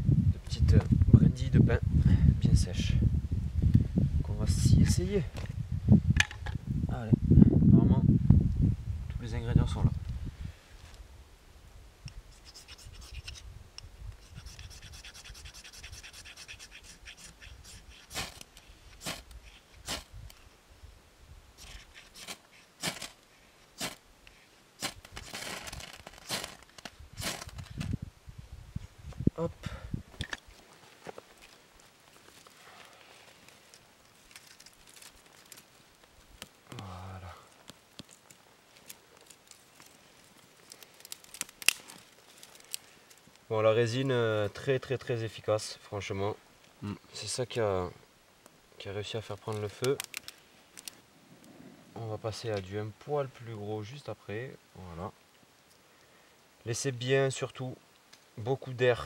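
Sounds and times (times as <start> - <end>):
small fire crackling: 10.0 - 29.4, 30.0 - 43.6, 48.1 - 52.7, 57.8 - 58.4
fire steel scraping: 21.6 - 23.2, 23.8 - 28.0
wood snapping: 24.8 - 27.9, 33.4 - 36.9, 37.5 - 43.4, 49.5 - 51.0.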